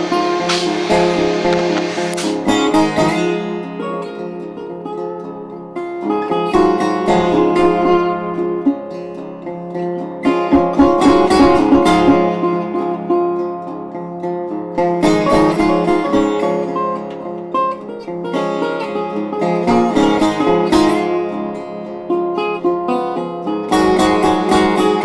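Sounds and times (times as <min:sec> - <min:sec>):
acoustic guitar piece: 0:00.0 - 0:25.0.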